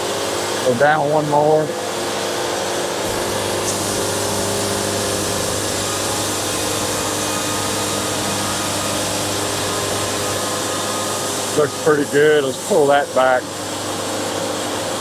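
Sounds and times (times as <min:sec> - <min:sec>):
diesel engine running: 0:03.0 - 0:11.8
bandsaw cutting log: 0:03.0 - 0:13.6.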